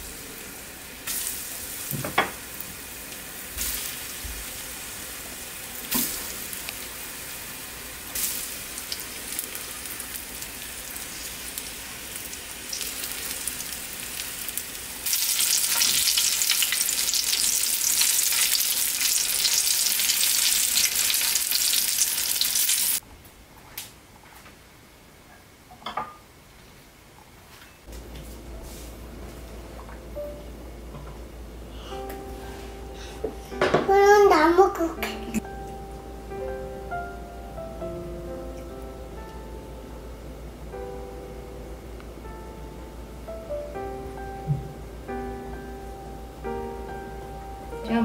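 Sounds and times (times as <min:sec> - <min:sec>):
food sizzling in oil: 0:00.0 - 0:23.0.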